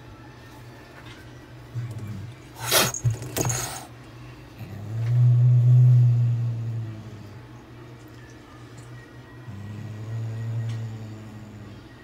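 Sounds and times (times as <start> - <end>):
cat hissing: 2.6 - 3.9
cat growling low: 4.6 - 7.5, 9.4 - 11.7.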